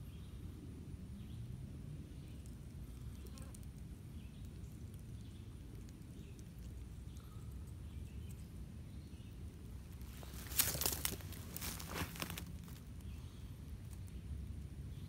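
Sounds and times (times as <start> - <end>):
faint bird chirps: 4.2 - 9.4
light crackles: 9.5 - 14.7.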